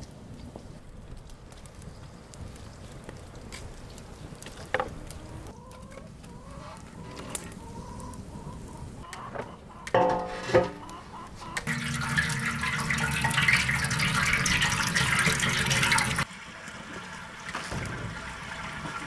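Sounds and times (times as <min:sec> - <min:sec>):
wood fire crackling: 0:00.0 - 0:09.1, 0:11.6 - 0:19.0
metal pot clanking on bricks: 0:09.9 - 0:10.9.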